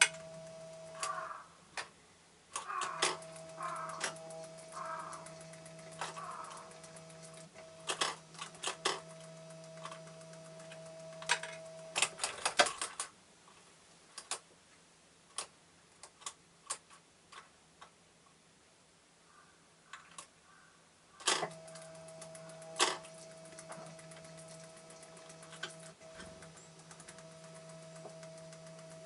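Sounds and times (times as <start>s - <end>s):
bird pecking at seeds: 0.0s - 1.4s, 2.6s - 13.0s, 19.3s - 29.0s
steady hum: 0.0s - 1.7s, 2.6s - 12.9s, 21.4s - 29.0s.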